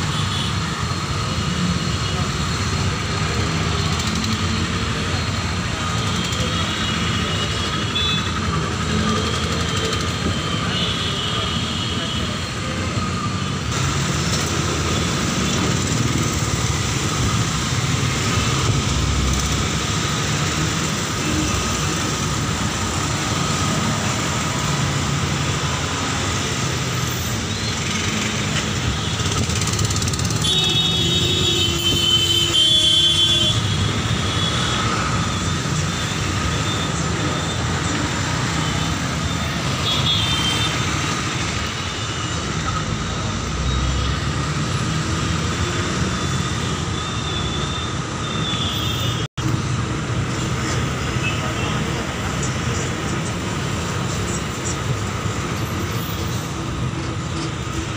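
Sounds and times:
traffic rumble and road noise: 0.0s - 57.9s
vehicle horns tooting: 30.4s - 37.6s.

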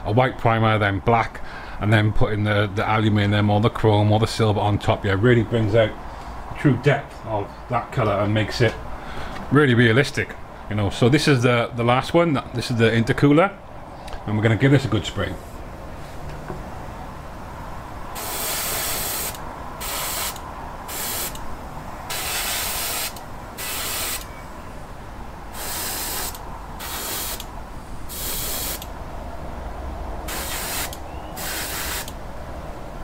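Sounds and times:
steady low hum: 0.0s - 33.0s
airbrush spraying hiss: 18.2s - 21.4s, 22.1s - 24.3s, 25.5s - 27.5s, 28.1s - 28.9s, 30.3s - 32.2s.

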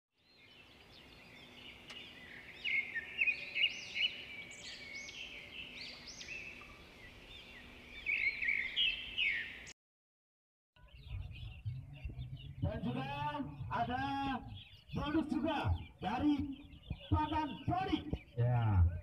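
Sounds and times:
songbirds singing: 0.2s - 9.8s, 10.8s - 19.0s.

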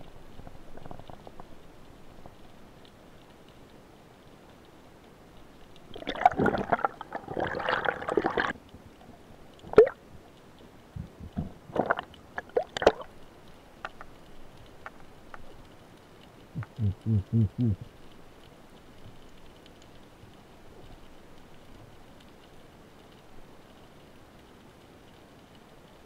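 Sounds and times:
underwater gurgling: 0.0s - 3.5s, 5.4s - 24.0s
underwater scraping and knocking: 0.3s - 1.6s, 11.0s - 13.0s
low underwater pulses: 16.5s - 18.0s.

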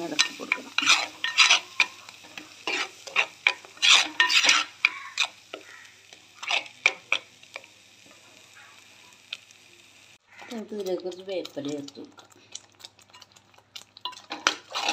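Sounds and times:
ladle scraping clay pot: 0.0s - 5.4s, 6.4s - 7.0s, 14.0s - 14.9s
paste sizzling in hot oil: 0.0s - 14.9s.

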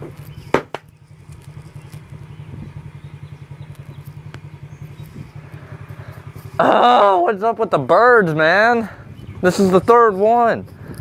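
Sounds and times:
motorcycle engine idling: 0.0s - 11.0s
sharp knock: 0.5s - 0.9s.

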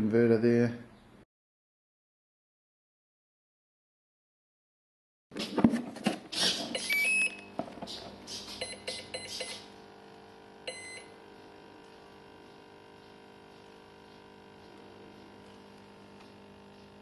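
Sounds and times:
faint steady hum: 6.8s - 17.0s
short electronic beeps: 8.6s - 9.6s, 10.7s - 11.1s.

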